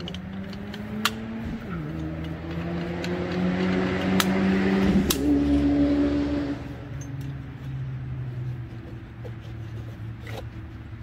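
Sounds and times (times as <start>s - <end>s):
folding shovel metal clicks: 0.0s - 4.4s
vehicle engine running: 0.0s - 11.0s.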